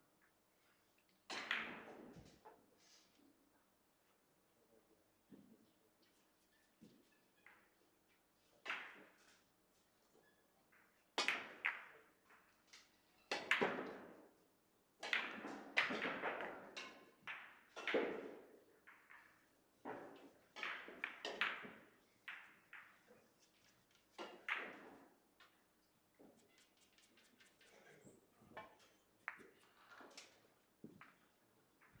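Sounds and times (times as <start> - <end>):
billiard balls clacking: 15.0 - 23.1, 24.0 - 25.6.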